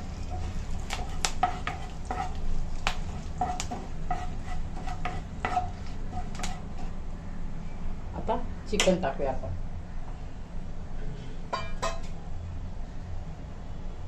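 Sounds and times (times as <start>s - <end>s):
spices frying in oil: 0.0s - 7.2s
spatula knocking against pan: 3.4s - 6.6s.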